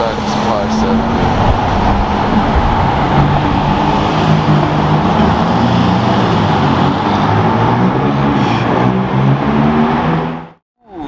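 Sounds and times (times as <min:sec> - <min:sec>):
sports car engine moving off: 0:00.0 - 0:10.6
street traffic: 0:00.0 - 0:10.6.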